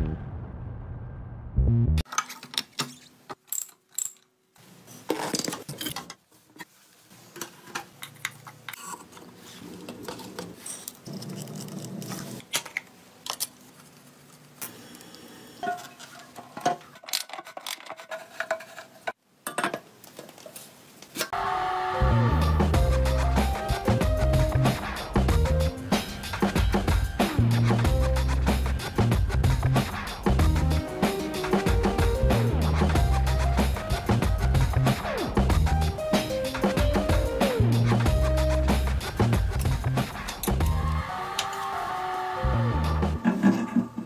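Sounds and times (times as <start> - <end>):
metal tools clinking and knocking: 2.1 - 4.3.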